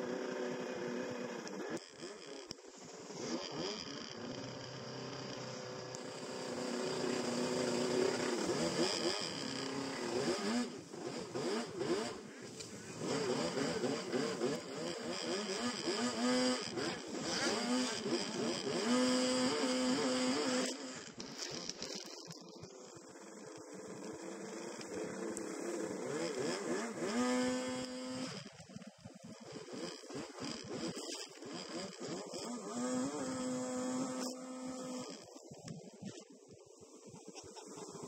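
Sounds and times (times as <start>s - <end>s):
jet ski engine running hard: 0.0s - 28.5s.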